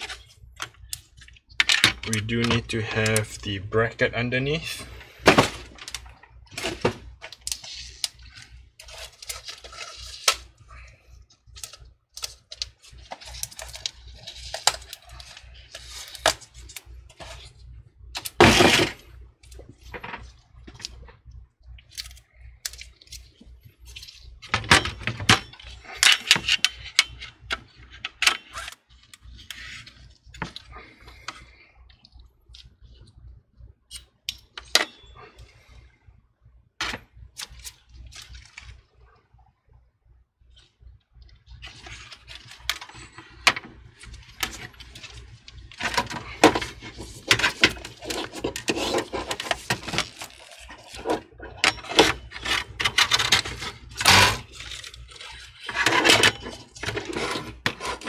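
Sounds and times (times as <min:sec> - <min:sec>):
computer parts clicking and knocking: 0:00.0 - 0:03.4, 0:21.8 - 0:28.6.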